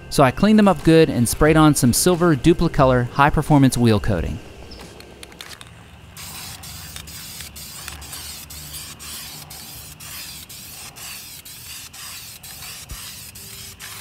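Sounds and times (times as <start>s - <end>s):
aerosol spray hiss: 6.2s - 14.0s.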